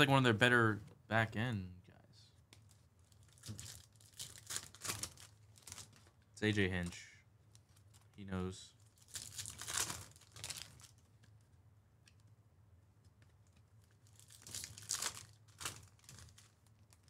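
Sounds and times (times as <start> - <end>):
foil wrapper tearing and crinkling: 3.0 - 6.1, 8.8 - 11.1, 13.8 - 17.0.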